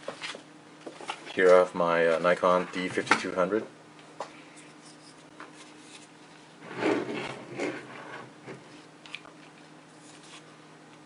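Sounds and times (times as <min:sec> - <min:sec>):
plastic mount rubbing scrape: 0:06.6 - 0:08.7.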